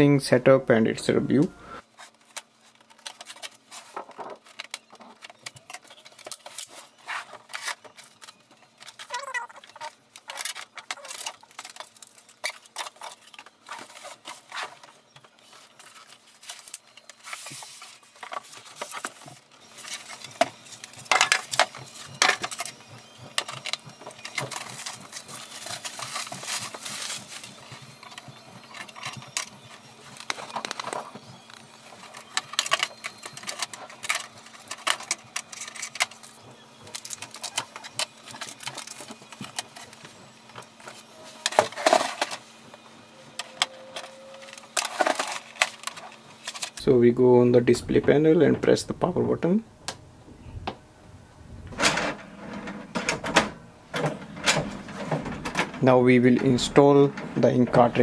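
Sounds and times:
packing rustling: 0:02.0 - 0:42.6.

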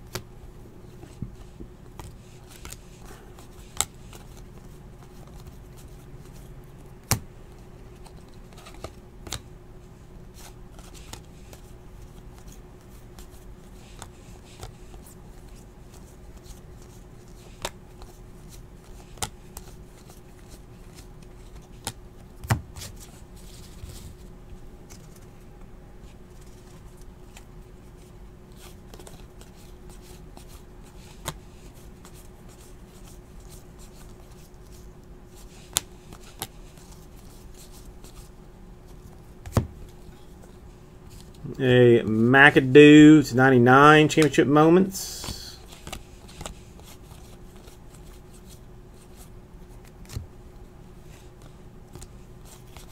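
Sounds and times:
faint steady hum: 0:00.0 - 0:52.9
trading cards flipped: 0:45.1 - 0:50.2.

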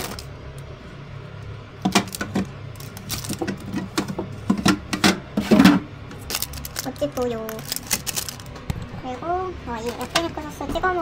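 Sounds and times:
steady low hum: 0:00.0 - 0:11.0
plastic packs clicking and rattling: 0:01.8 - 0:04.8, 0:06.2 - 0:08.6.

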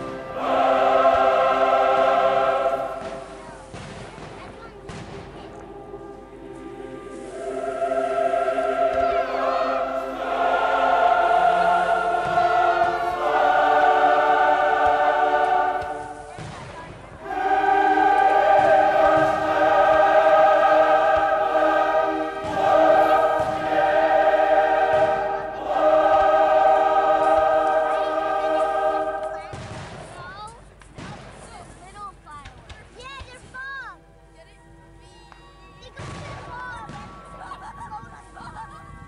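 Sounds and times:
choir singing held chords: 0:00.0 - 0:04.0, 0:04.6 - 0:30.2.

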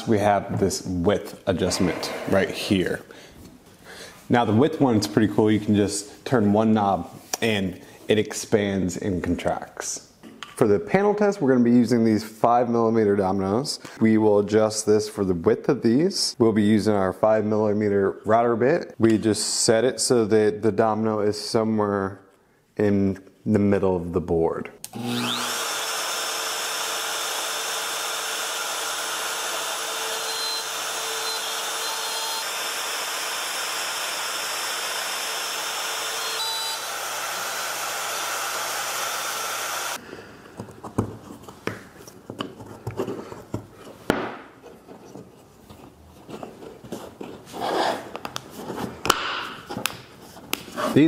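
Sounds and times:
router cutting wood: 0:24.9 - 0:40.0.

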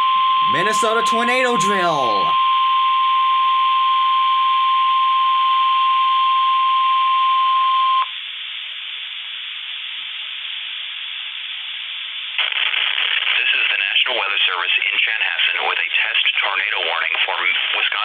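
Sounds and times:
high alarm tone: 0:00.4 - 0:02.4.

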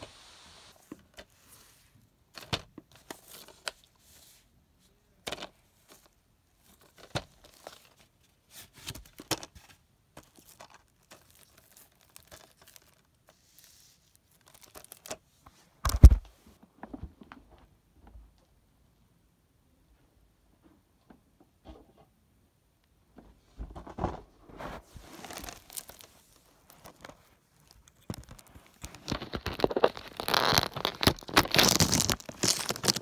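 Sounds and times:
plastic wrap tearing and crinkling: 0:10.4 - 0:13.1, 0:14.2 - 0:15.2, 0:25.0 - 0:33.0.

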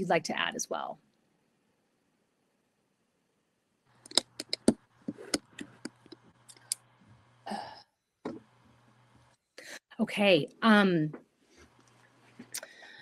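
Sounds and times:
sharp clicks and taps: 0:04.0 - 0:06.8.

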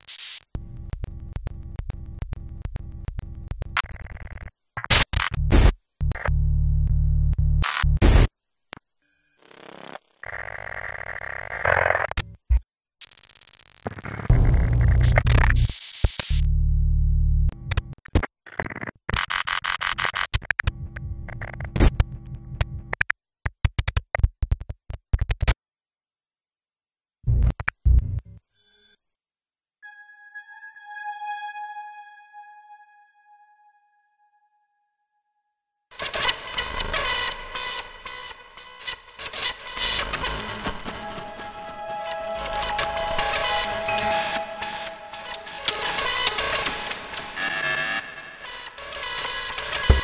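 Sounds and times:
stuttering loop of clicks: 0:00.5 - 0:04.5
low synth drone: 0:40.7 - 0:47.5
short blocks of noise: 0:49.4 - 0:50.0.

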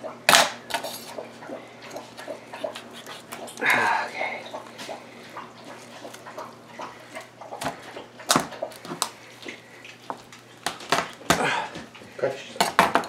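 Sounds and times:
knife cutting through chicken: 0:02.7 - 0:03.5.

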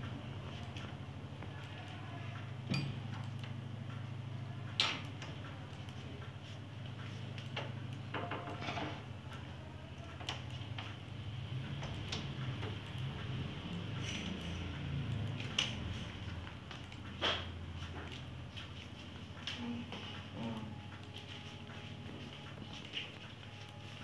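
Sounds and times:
steady low hum: 0:00.0 - 0:24.0
computer mouse clicks: 0:11.8 - 0:16.1.

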